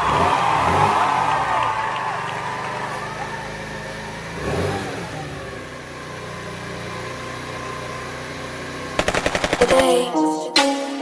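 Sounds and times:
scooter engine idling: 0.0 - 10.0
rapid sharp clicks: 9.0 - 10.0
electronic music: 9.6 - 11.0.

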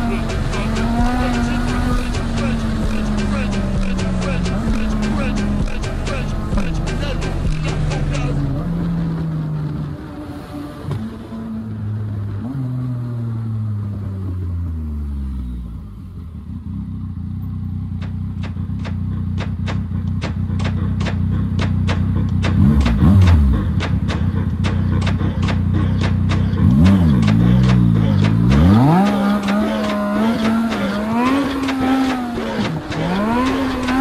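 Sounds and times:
regular ticking: 0.0 - 8.6, 17.8 - 34.0
motorcycle engine with loud exhaust: 0.0 - 34.0.

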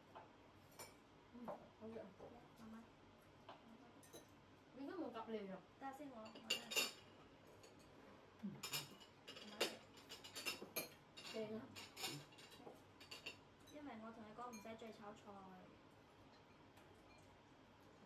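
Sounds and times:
cutlery clinking on dishes: 0.6 - 1.0, 4.0 - 4.4, 6.3 - 7.9, 8.6 - 13.8.

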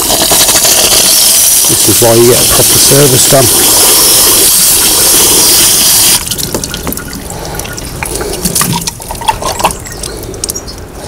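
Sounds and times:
hose spray gun jetting water: 0.0 - 6.6
water dripping: 2.5 - 10.9.

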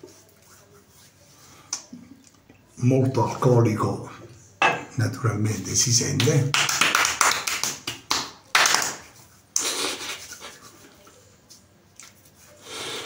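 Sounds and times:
hands slapping face: 6.2 - 9.7.

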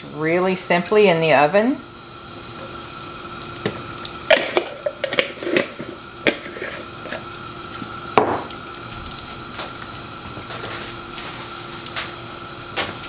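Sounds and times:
faint steady hum: 0.0 - 12.9
jar set down on counter: 8.2 - 8.5.

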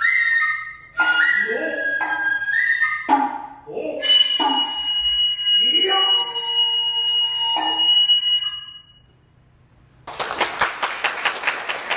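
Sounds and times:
bamboo flute high note: 0.0 - 9.1
audience applause: 10.1 - 11.9.

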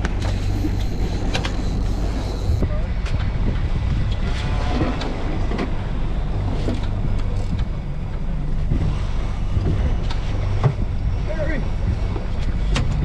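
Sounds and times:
outboard motor running: 0.0 - 13.0
water washing around boat: 0.0 - 13.0
wind buffeting microphone: 0.0 - 13.0.

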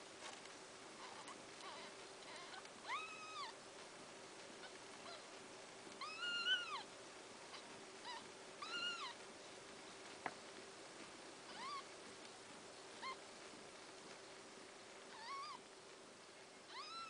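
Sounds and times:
kittens mewing: 6.0 - 6.9, 7.5 - 9.2, 11.5 - 11.9, 15.1 - 15.7, 16.7 - 17.0.

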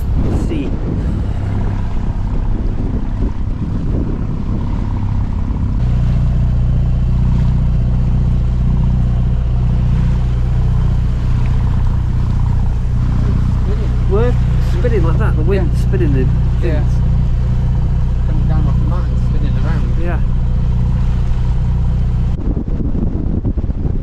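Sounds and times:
boat diesel engine running: 0.0 - 24.0
wind on microphone: 0.0 - 24.0.

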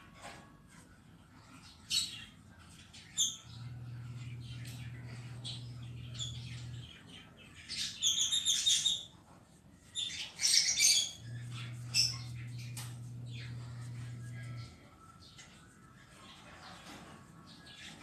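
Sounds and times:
low steady hum: 0.0 - 8.0, 9.5 - 18.0
cockatiel chirping and warbling: 7.6 - 9.2, 9.9 - 12.9.

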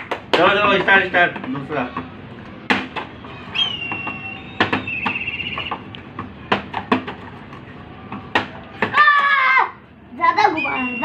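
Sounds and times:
high whistle-like tone: 3.4 - 5.8, 10.4 - 11.0
plastic bottles landing on concrete: 3.8 - 9.4.

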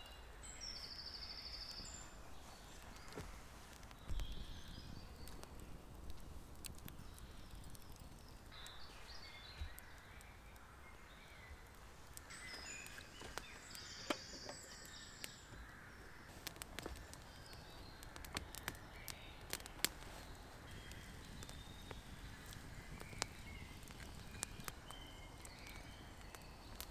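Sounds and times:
campfire crackling and popping: 0.0 - 26.9
birds calling: 7.0 - 26.9.

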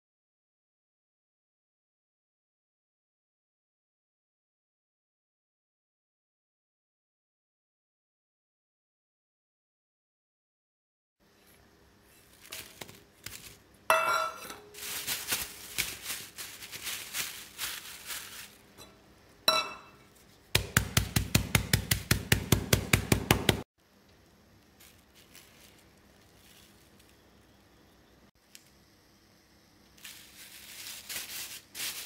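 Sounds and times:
plastic bag rustling: 12.0 - 13.8, 14.4 - 18.8, 24.7 - 27.3, 30.0 - 32.0
metal bowl clinking: 13.9 - 15.0, 18.8 - 20.2
fast pounding blows: 20.6 - 23.6
knocks on biscuits in a bag: 20.6 - 23.6.

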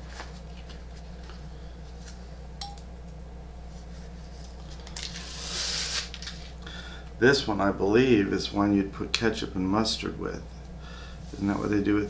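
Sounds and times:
fabric and paper rustling: 0.0 - 1.4
steady low hum: 0.0 - 12.0.

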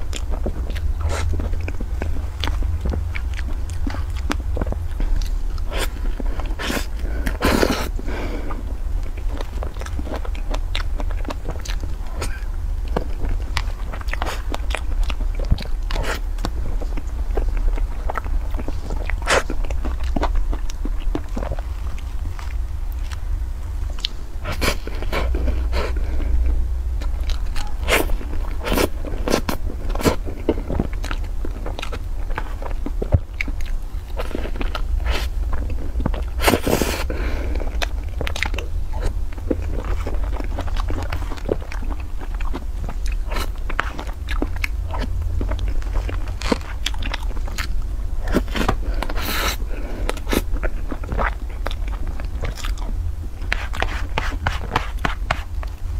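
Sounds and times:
steady low hum: 0.0 - 55.9
wet chewing and mouth smacks: 0.0 - 55.9.

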